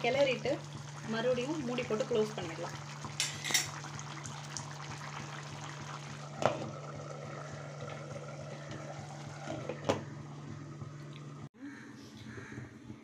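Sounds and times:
gravy bubbling in a pan: 0.0 - 11.5
glass lid clinking onto pan: 3.2 - 3.8.

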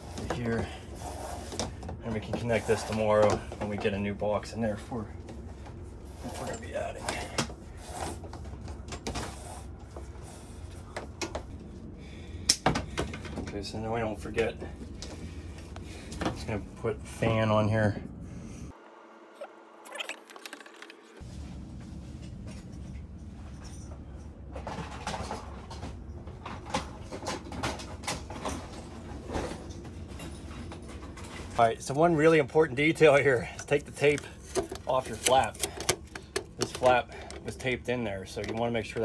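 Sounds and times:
steady low hum: 0.0 - 19.2, 21.2 - 39.0
electrical cable scraping on wood: 33.6 - 37.7.

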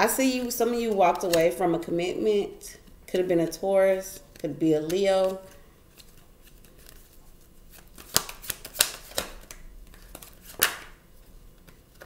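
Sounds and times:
cards shuffling: 0.3 - 1.6, 4.2 - 11.0
card snaps and slaps: 8.0 - 11.0.

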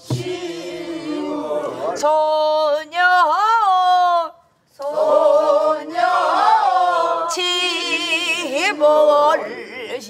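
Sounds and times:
group of voices singing: 0.0 - 3.3, 4.8 - 10.0
woman singing with vibrato: 2.0 - 4.4, 6.9 - 10.0.

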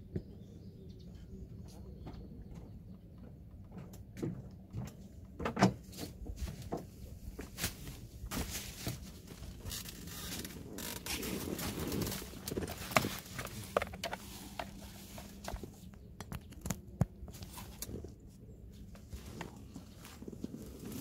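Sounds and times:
steady rustling: 5.9 - 21.0.

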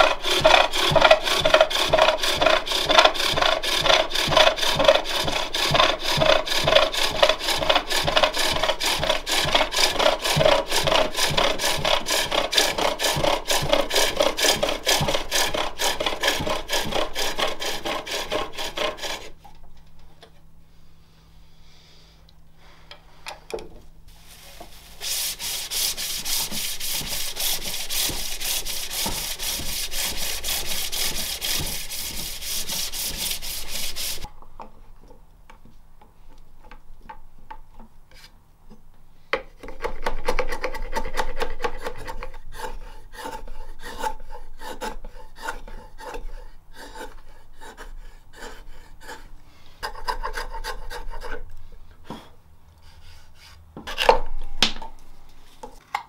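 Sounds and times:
hand chisel paring wood: 0.0 - 19.3, 25.1 - 34.3, 39.4 - 51.4
scraping strokes on wood: 0.0 - 19.4, 24.1 - 34.3, 39.8 - 54.1.

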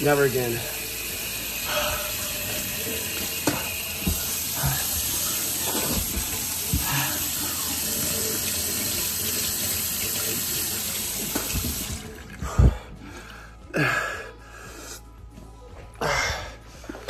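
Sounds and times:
faucet running: 0.0 - 12.4.

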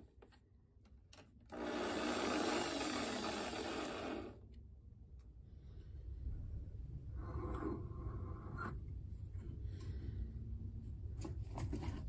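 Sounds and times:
power drill motor running: 1.5 - 4.4.

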